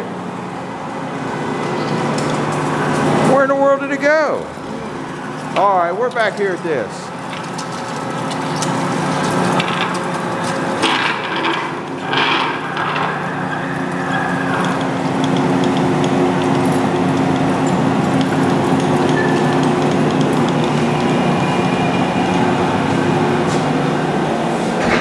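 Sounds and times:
lathe machine hum: 11.8 - 25.0.

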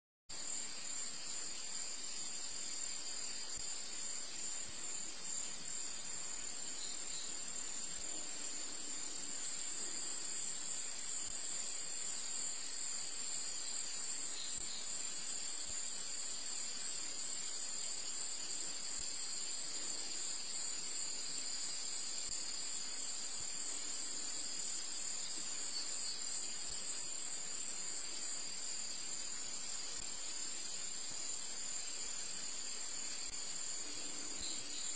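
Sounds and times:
crickets trilling: 0.3 - 34.9.

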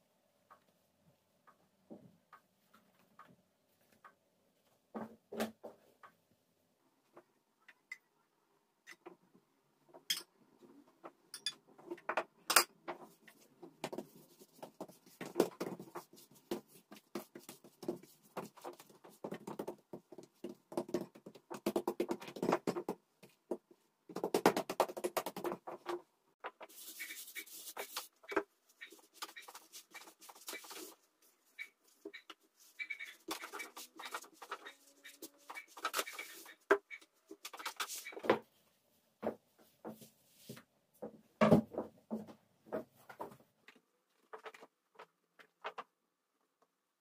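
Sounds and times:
hands rubbing and patting dough: 13.0 - 26.0, 26.6 - 36.6.

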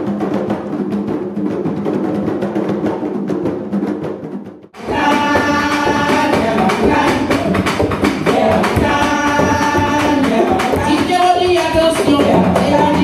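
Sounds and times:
hand drums playing: 0.0 - 13.0
people singing: 4.8 - 13.0.

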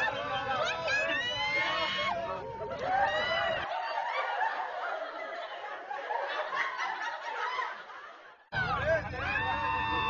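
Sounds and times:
people talking: 0.0 - 3.6, 8.6 - 10.0
people laughing: 0.0 - 10.0.

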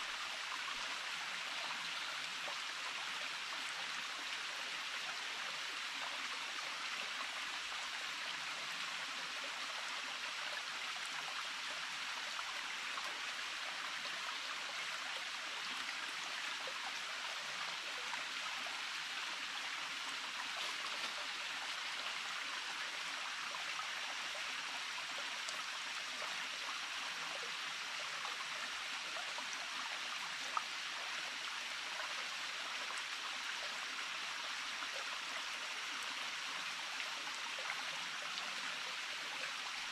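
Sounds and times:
stream water rushing: 20.2 - 22.8.

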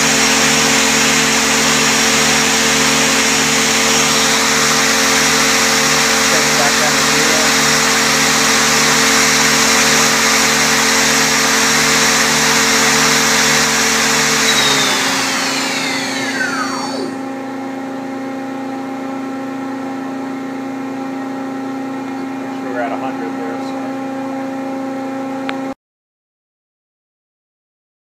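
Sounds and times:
lathe spindle whine: 0.0 - 18.1
machine hum: 0.0 - 18.5.

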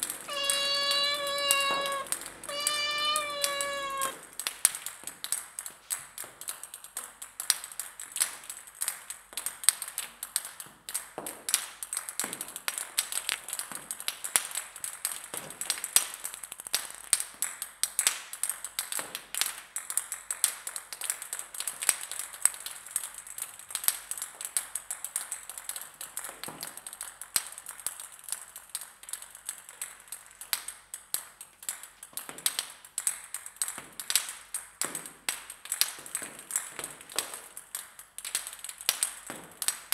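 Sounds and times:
ping-pong balls bouncing: 0.3 - 4.2.

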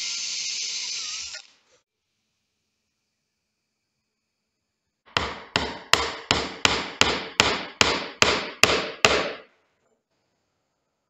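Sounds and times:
hammer striking steel pin: 5.2 - 9.4.

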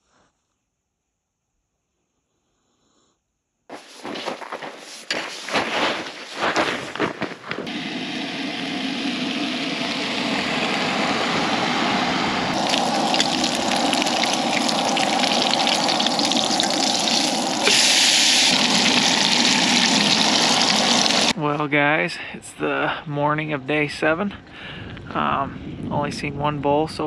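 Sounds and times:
bacon sizzling in a frying pan: 12.6 - 21.3.

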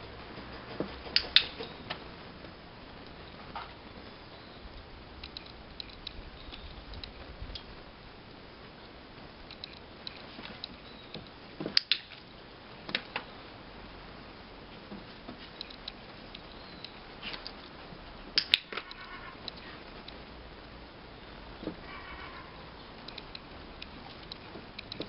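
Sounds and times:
light clicks and taps: 23.0 - 25.0.

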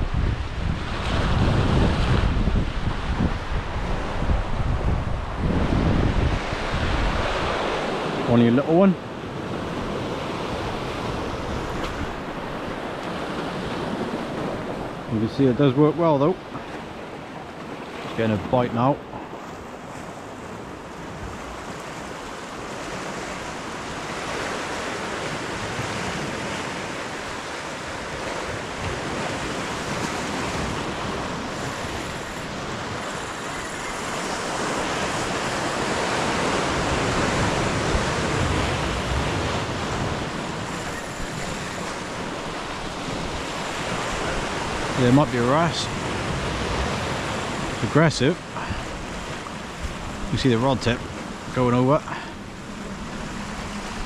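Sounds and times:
wind buffeting microphone: 0.0 - 8.4, 19.0 - 48.0
sea surf breaking over rocks: 0.0 - 54.0.

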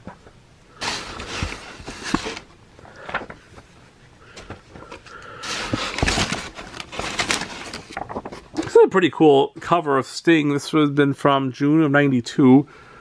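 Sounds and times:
cardboard box handled: 0.8 - 2.5, 5.4 - 8.4
packing paper rustling: 0.8 - 3.7, 4.4 - 8.8.

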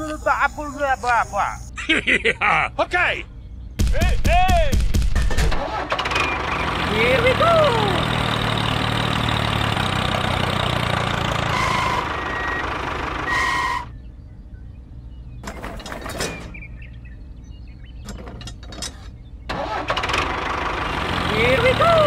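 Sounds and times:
tractor engine running: 3.8 - 13.9, 15.2 - 22.0.

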